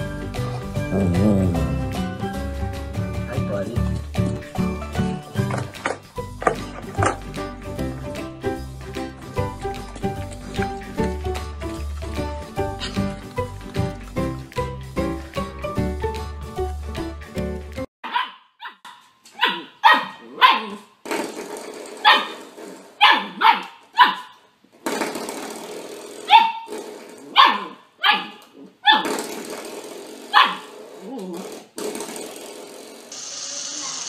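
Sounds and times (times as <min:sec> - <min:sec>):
small dog barking: 0:18.0 - 0:20.9, 0:23.0 - 0:24.4, 0:26.3 - 0:26.7, 0:27.4 - 0:29.0, 0:30.3 - 0:30.7.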